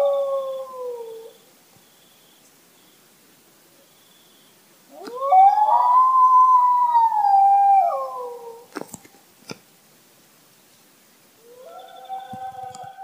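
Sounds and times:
dog howling: 4.9s - 8.7s, 11.4s - 13.0s.

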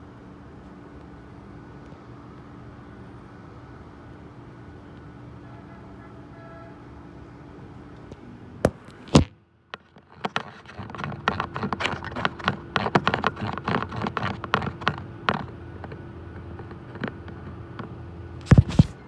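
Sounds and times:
faint steady hum: 0.0s - 19.0s
rapid irregular clicks and taps: 9.7s - 18.6s.

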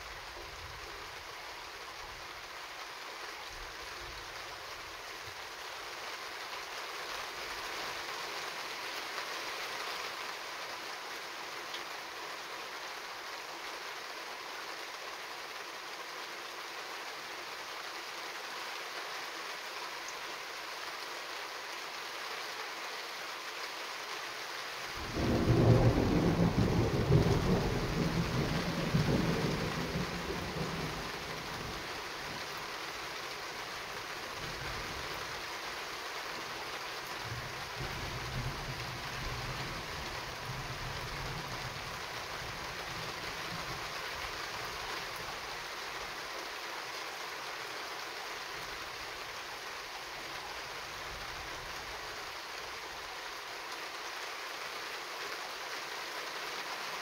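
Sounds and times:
steady rain: 0.0s - 57.0s
thunder rumbling: 25.0s - 31.0s.

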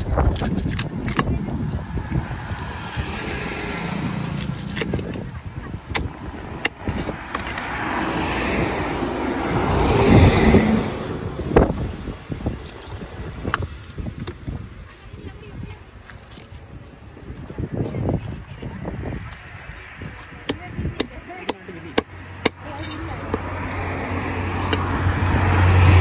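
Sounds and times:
vehicle passing: 1.5s - 5.0s, 6.1s - 13.4s, 20.7s - 26.0s.

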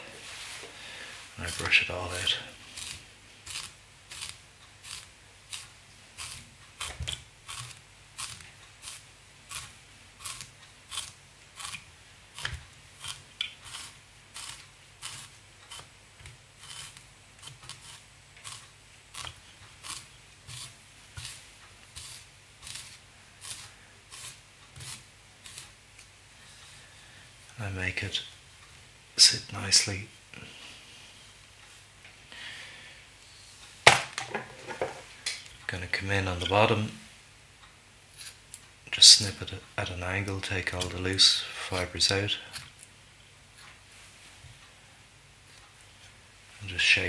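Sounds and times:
brush scratching through fibres: 0.0s - 15.9s, 16.6s - 25.8s.

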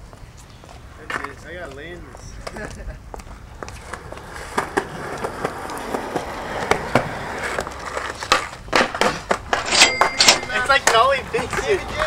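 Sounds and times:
skateboard wheels rolling on concrete: 0.0s - 12.0s
skateboard clacks: 2.4s - 12.0s.

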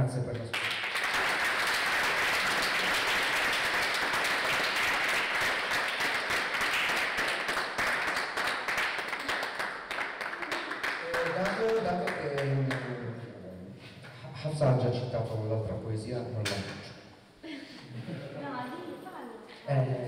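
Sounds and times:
audience applauding: 0.5s - 13.0s.

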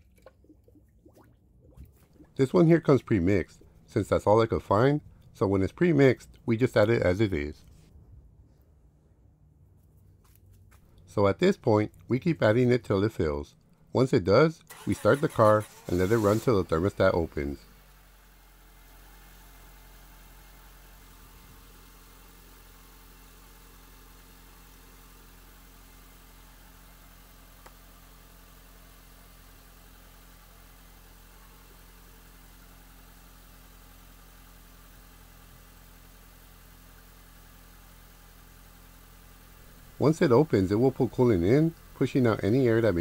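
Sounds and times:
car engine idling: 14.7s - 43.0s.

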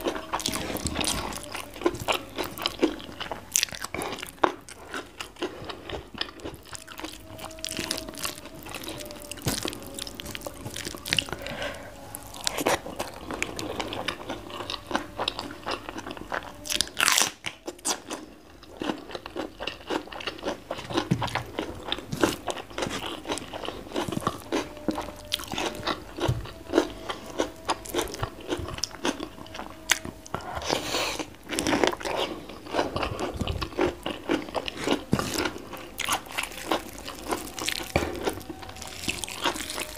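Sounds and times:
crunching and chewing vegetables: 0.0s - 39.9s.

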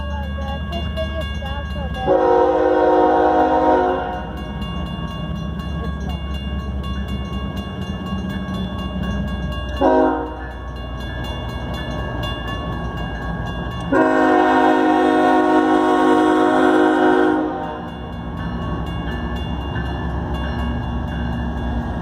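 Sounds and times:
crossing bell ringing: 0.0s - 22.0s
low locomotive engine rumble: 0.0s - 22.0s
locomotive air horn blasts: 2.1s - 4.3s, 9.8s - 10.5s, 13.9s - 17.9s.

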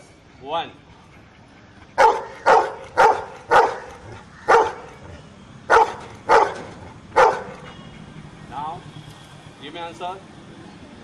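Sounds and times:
dog barking: 2.0s - 5.0s, 5.7s - 7.7s.

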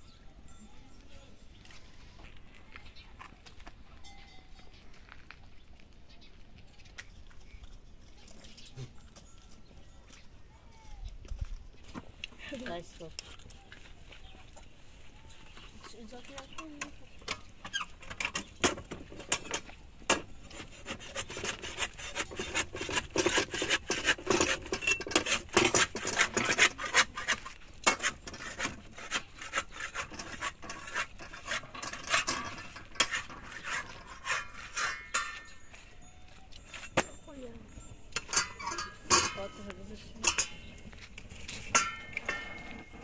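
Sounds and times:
metal spatula scraping griddle: 17.4s - 35.8s, 38.2s - 43.0s.

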